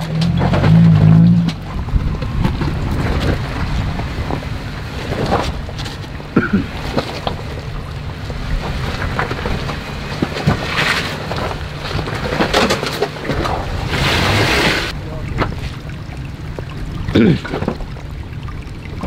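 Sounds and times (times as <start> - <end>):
off-road engine at low revs: 0.0 - 19.0.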